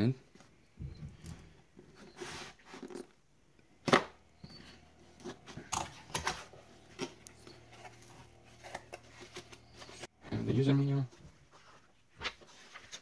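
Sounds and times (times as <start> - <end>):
cardboard rustling and scraping: 4.5 - 10.1.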